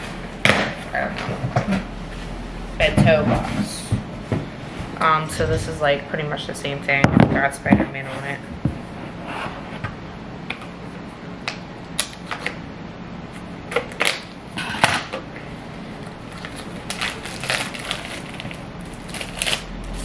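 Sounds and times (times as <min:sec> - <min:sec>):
plastic wrapping rustling: 0:16.0 - 0:20.0.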